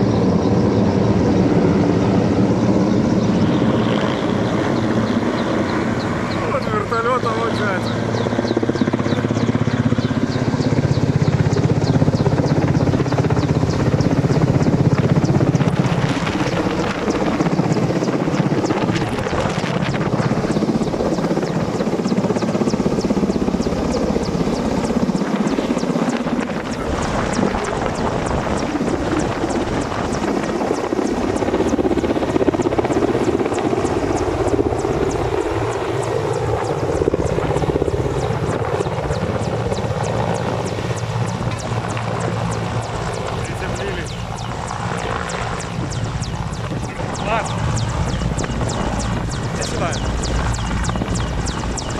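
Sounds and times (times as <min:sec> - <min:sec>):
helicopter rotor chopping: 0:00.0 - 0:51.9
helicopter turbines running: 0:00.0 - 0:51.9.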